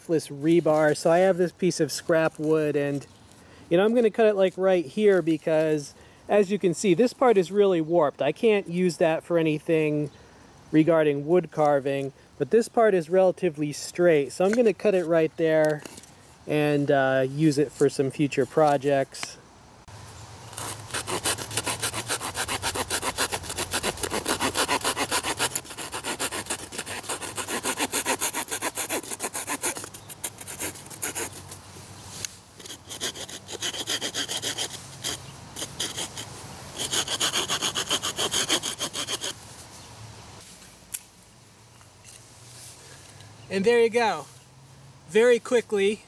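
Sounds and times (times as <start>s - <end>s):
small saw cutting wood: 20.5s - 31.6s, 32.6s - 39.4s.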